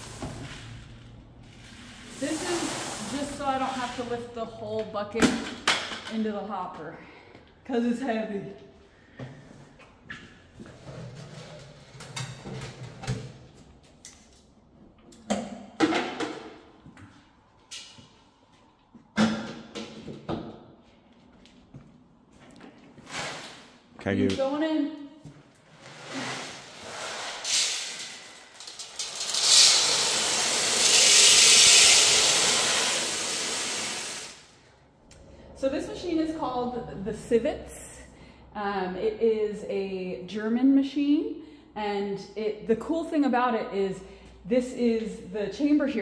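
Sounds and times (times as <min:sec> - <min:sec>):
coffee beans rattling: 0:27.4 - 0:34.4.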